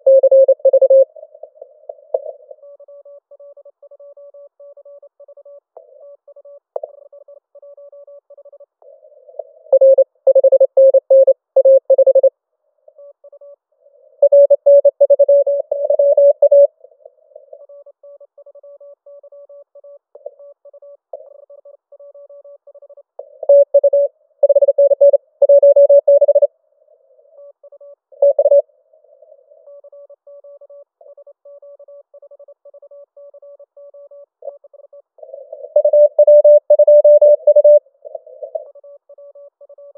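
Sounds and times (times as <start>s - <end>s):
morse code tones: 0.0s - 1.1s, 9.7s - 12.3s, 14.2s - 16.7s, 23.3s - 26.5s, 28.2s - 28.6s, 35.2s - 38.8s.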